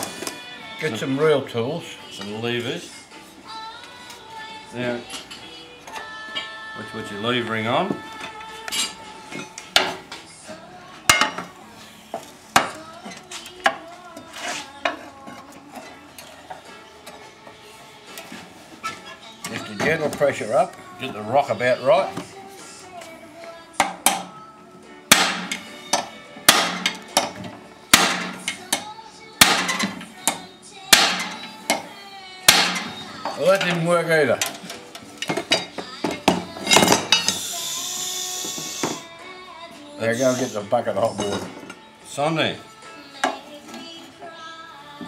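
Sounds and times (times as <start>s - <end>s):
hammer striking metal: 25.1s - 25.6s, 26.5s - 27.4s, 28.0s - 28.4s, 30.9s - 31.4s, 32.5s - 33.0s.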